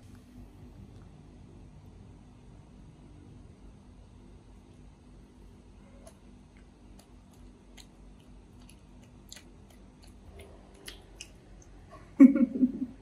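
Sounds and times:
monkey chewing and smacking: 6.9s - 11.8s.

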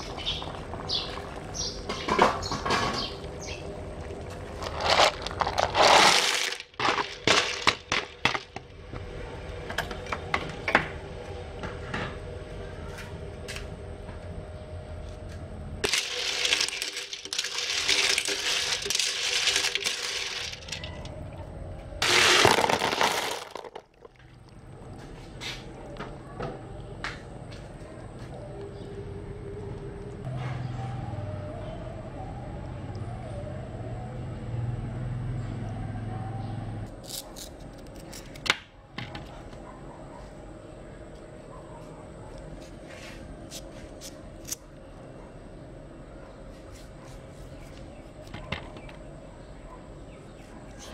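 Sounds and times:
steady low hum: 0.0s - 22.4s, 23.4s - 34.6s
shells clattering in metal pot: 4.4s - 8.6s, 15.8s - 21.2s, 22.0s - 24.1s.

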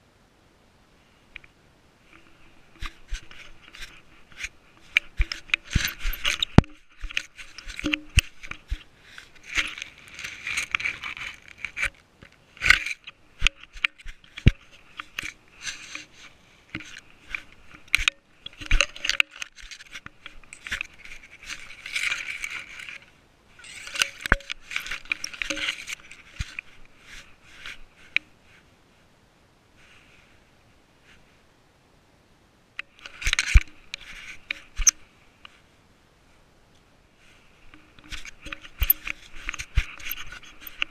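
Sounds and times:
grass and leaves rustling on camera: 0.7s - 32.0s, 32.6s - 40.9s
sharp ticks and knocks: 2.1s - 16.1s, 16.7s - 23.0s, 23.6s - 26.8s, 37.7s - 40.9s.

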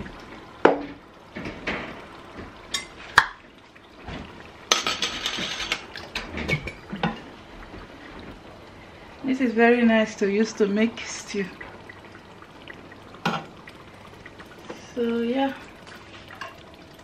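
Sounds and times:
pots and utensils clinking: 2.7s - 3.4s, 4.7s - 7.3s, 16.4s - 16.6s.

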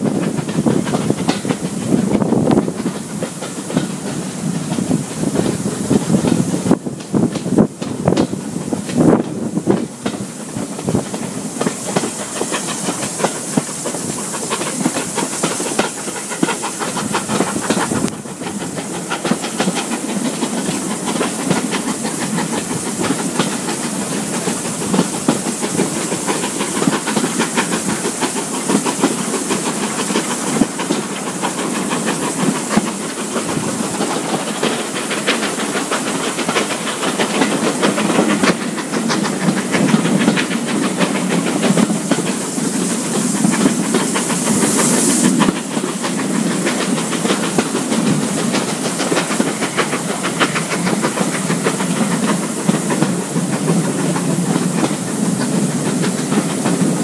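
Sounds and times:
air rush and steam hiss: 0.0s - 57.0s
train wheels clattering over rails: 0.0s - 57.0s.

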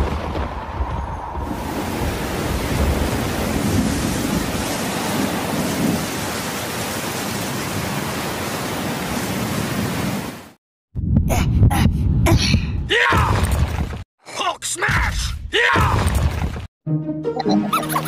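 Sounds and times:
thunder rumbles: 0.0s - 6.4s
hissing rain: 0.0s - 10.6s.

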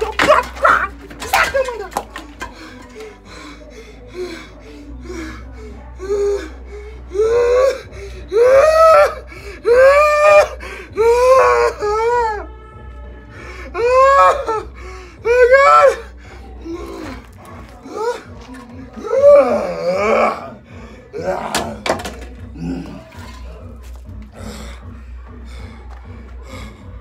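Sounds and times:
man crying out: 0.0s - 2.0s, 13.7s - 17.1s.

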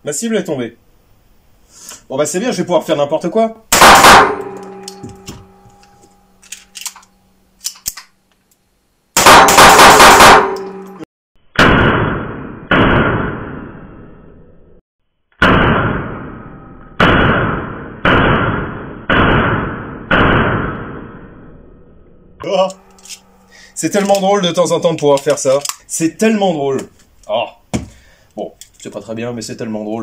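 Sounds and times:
pistol shots with ringing echo: 3.8s - 5.0s, 9.2s - 10.8s.

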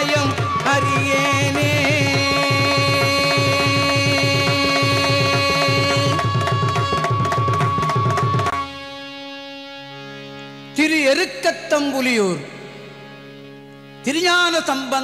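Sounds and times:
hand drum rhythm: 1.7s - 8.6s.

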